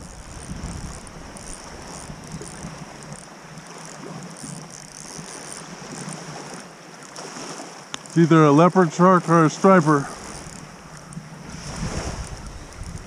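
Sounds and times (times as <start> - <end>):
wind buffeting microphone: 0.0 - 4.6, 10.0 - 13.0
small waves lapping: 0.0 - 13.0.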